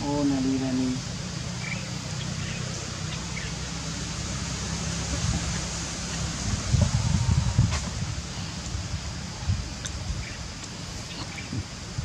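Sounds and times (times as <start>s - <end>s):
wind buffeting microphone: 4.9s - 12.0s.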